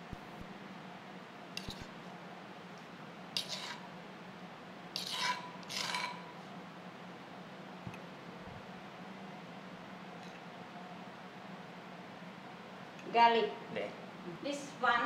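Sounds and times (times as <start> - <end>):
spoon scraping sauce from bowl: 1.6 - 1.9, 3.4 - 3.9, 5.0 - 6.3.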